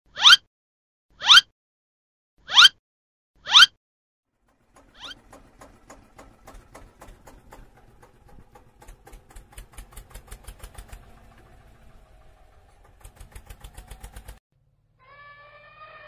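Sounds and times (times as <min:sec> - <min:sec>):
tractor engine chugging: 0:04.3 - 0:14.4.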